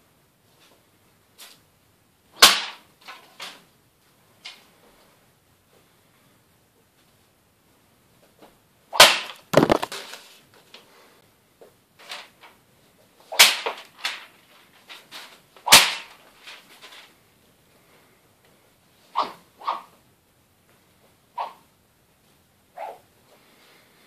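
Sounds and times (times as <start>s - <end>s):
paper rustling: 9.5s - 10.4s.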